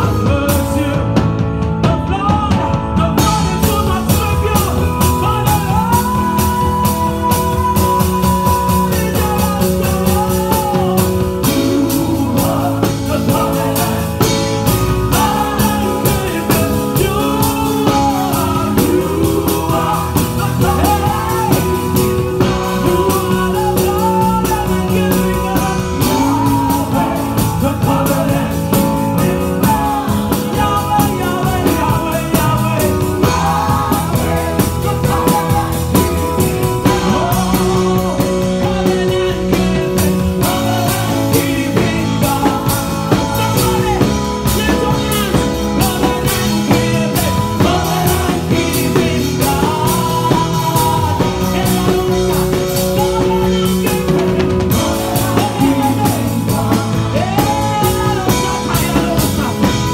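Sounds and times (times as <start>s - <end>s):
band playing steady beat: 0.0s - 59.9s
people singing: 0.0s - 59.9s.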